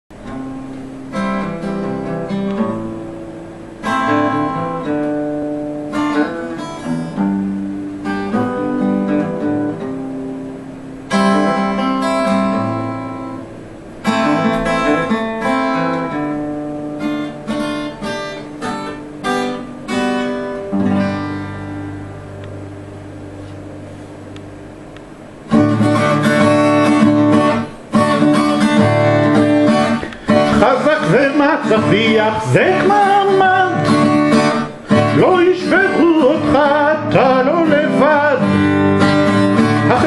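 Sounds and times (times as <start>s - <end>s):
acoustic guitar strumming and picking: 0.1s - 40.0s.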